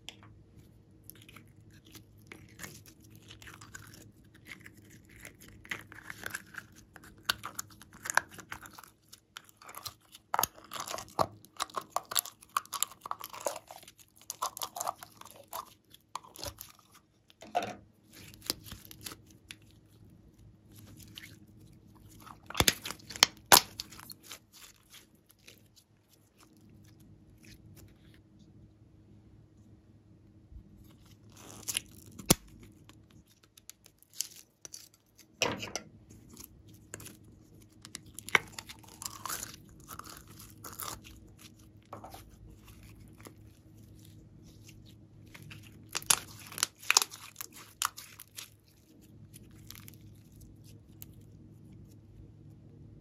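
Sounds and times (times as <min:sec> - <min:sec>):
slime clicking and crackling: 0:01.1 - 0:17.4, 0:18.1 - 0:20.0, 0:20.7 - 0:27.0, 0:36.2 - 0:51.2.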